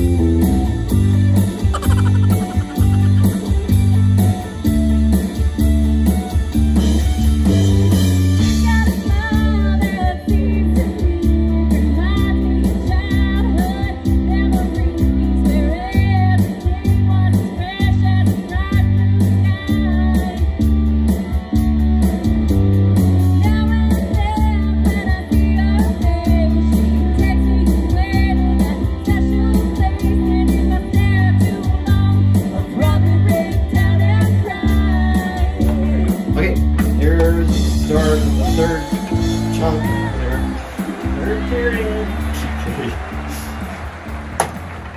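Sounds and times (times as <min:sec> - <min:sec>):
drums with steady beat: 0:00.0 - 0:44.9
electric guitars: 0:00.0 - 0:44.9
woman singing lead: 0:01.6 - 0:04.3, 0:08.4 - 0:20.7, 0:23.4 - 0:36.3.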